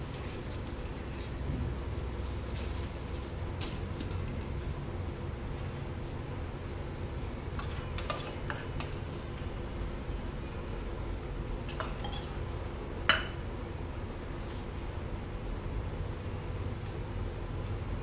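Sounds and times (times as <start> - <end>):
steady low hum: 0.0 - 18.0
utensils clinking against dishes: 11.7 - 12.5.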